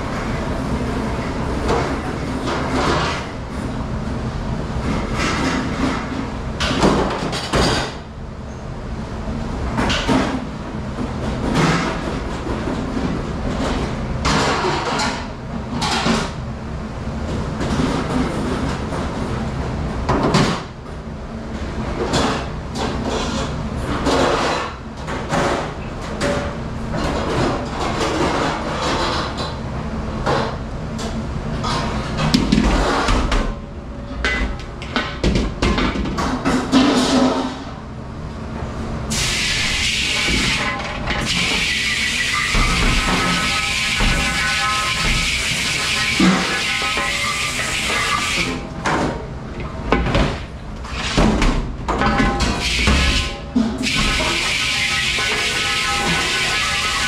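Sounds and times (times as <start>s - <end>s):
dish machine humming: 37.9s - 50.8s, 52.5s - 57.0s.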